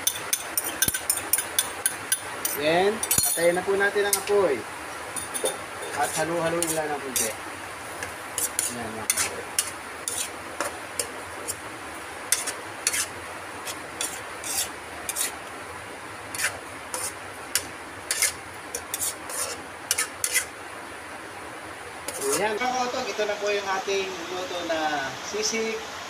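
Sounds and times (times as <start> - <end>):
metal spatula scraping a wok: 0.0 - 4.3, 5.2 - 7.4, 8.4 - 11.6, 12.3 - 15.4, 16.3 - 20.5, 22.1 - 22.5.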